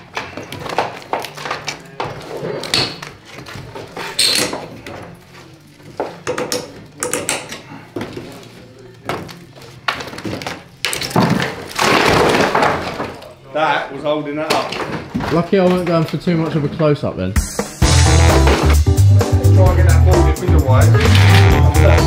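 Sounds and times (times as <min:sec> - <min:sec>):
plaster crashing down: 0:11.0 - 0:13.2.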